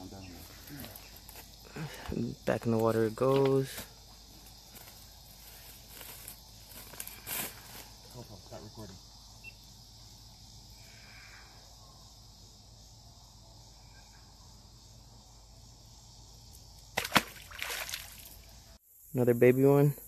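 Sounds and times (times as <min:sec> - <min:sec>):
fish splashing in water: 0:17.0 - 0:18.4.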